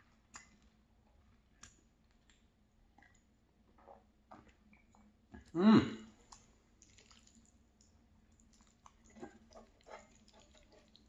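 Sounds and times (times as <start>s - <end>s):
man's throat voiced sound: 5.5s - 6.1s.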